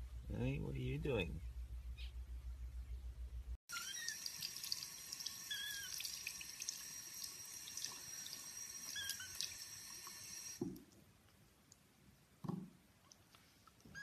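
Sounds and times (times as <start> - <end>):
water running from faucet: 3.7 - 10.6.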